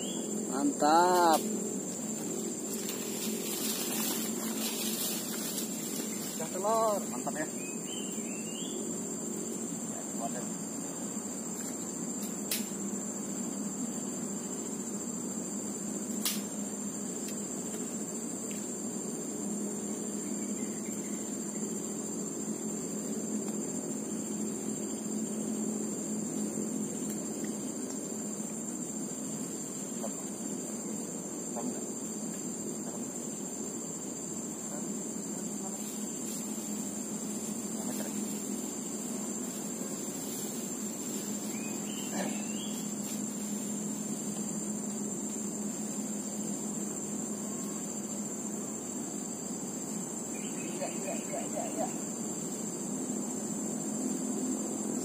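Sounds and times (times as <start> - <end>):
insects trilling: 0.0 - 55.0.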